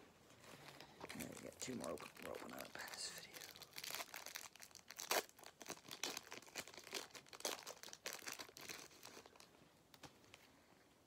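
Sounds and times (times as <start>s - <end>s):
wrapper crinkling and tearing: 0.7s - 9.5s.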